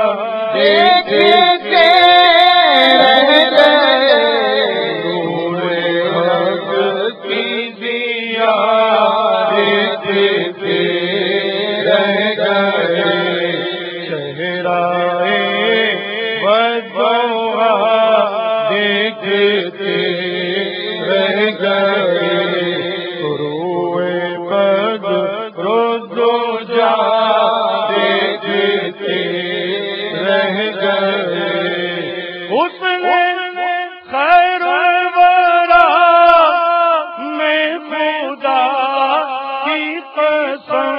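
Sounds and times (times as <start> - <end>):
man singing solo: 0.0 - 13.6, 14.2 - 40.9.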